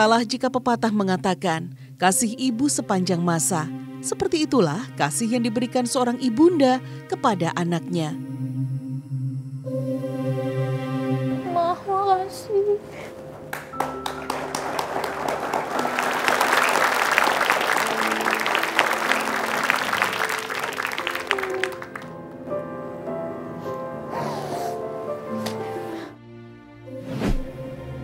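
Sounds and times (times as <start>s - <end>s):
background music: 0.0s - 28.0s
audience applauding: 13.5s - 22.4s.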